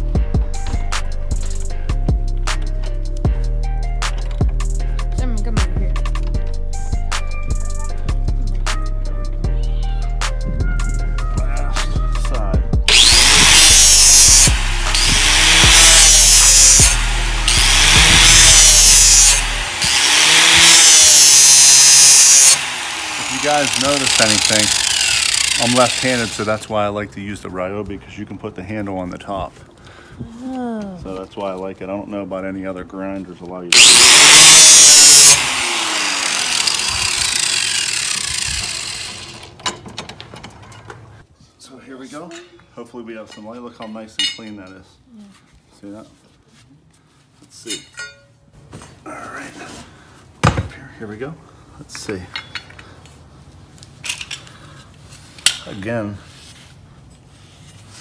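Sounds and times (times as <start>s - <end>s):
angle grinder grinding steel: 12.9s - 26.7s, 33.7s - 39.6s.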